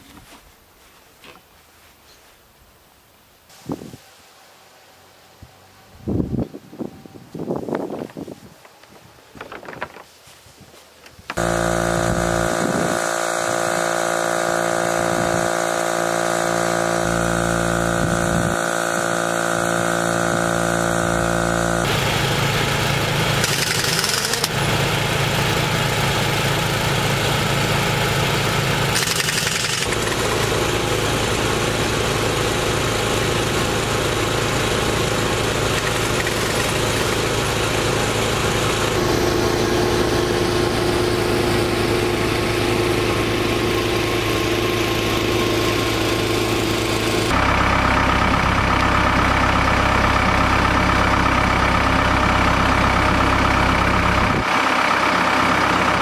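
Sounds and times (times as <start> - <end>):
air compressor running: 11.3 - 56.0.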